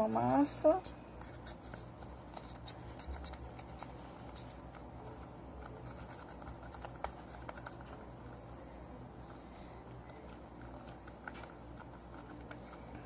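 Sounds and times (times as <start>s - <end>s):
hands kneading clay: 0.0s - 8.1s
low steady hum: 0.0s - 13.0s.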